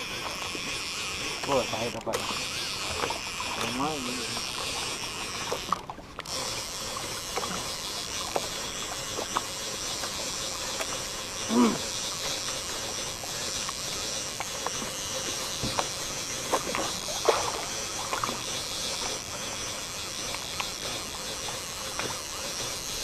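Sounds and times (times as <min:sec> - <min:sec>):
fishing reel gears whirring: 0:00.0 - 0:23.0
grunt-like voice: 0:11.5 - 0:11.9.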